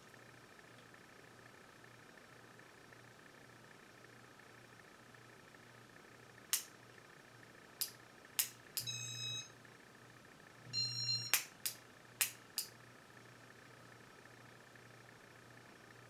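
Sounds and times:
ceiling fan humming: 0.0 - 16.0
sharp switch clicks: 6.5 - 6.7, 7.8 - 8.9, 11.3 - 12.7.

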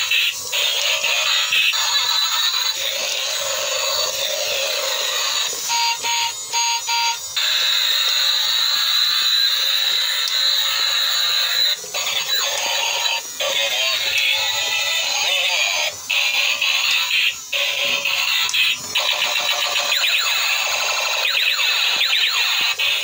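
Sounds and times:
tinny electronic toy music: 0.0 - 23.0
long high tone: 3.0 - 7.4.

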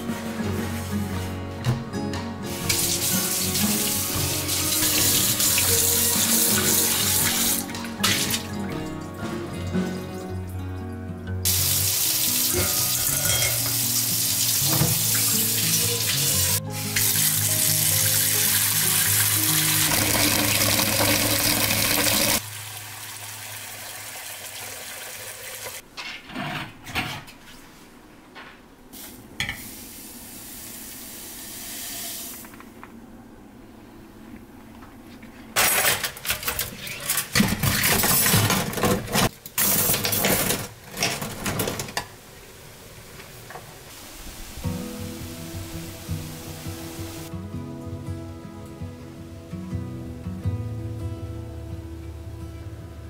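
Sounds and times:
tap water running into metal pot: 11.5 - 25.8.

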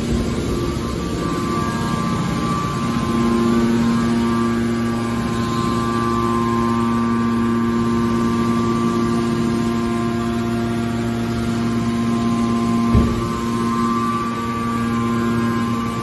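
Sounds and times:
hydraulic machine hum: 0.0 - 16.0
low knock: 12.9 - 13.4.

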